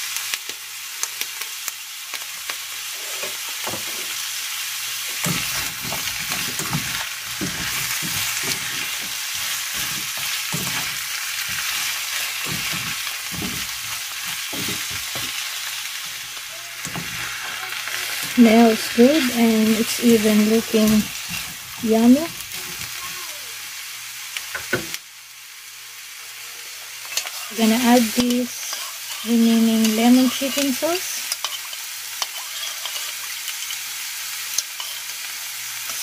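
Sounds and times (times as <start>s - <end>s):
vegetables sizzling in a wok: 0.0s - 36.0s
spatula scraping and knocking pan: 5.2s - 16.2s, 16.8s - 22.9s, 31.3s - 33.8s.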